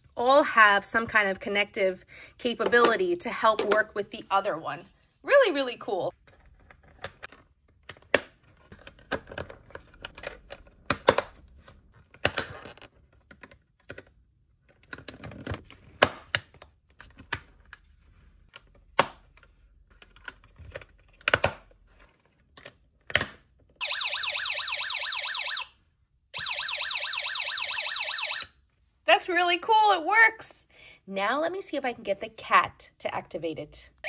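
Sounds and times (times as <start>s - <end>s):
plastic and metal snap clicks: 20.0s - 21.6s, 22.6s - 23.4s
warbling siren alarm from small speaker: 23.8s - 25.8s, 26.4s - 28.5s.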